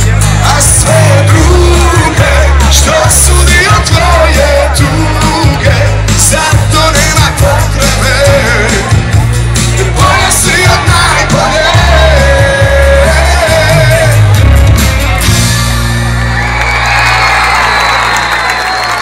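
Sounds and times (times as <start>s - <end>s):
live band with lead singer: 0.0s - 16.9s
drum beat: 0.6s - 15.4s
crowd shouting along: 9.7s - 19.0s.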